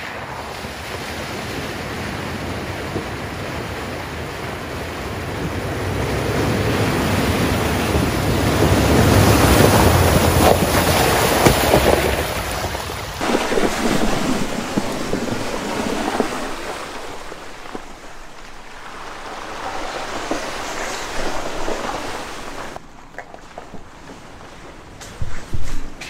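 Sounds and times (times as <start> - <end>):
tyres splashing through mud puddles: 0.0 - 26.0.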